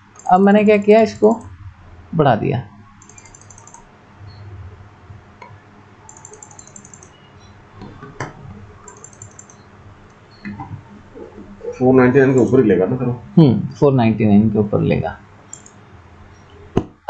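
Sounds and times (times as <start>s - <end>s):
faint low hum: 0.0s - 17.0s
computer mouse clicking: 0.1s - 1.5s, 3.0s - 3.9s, 5.4s - 7.2s, 7.8s - 10.6s, 15.5s - 15.8s.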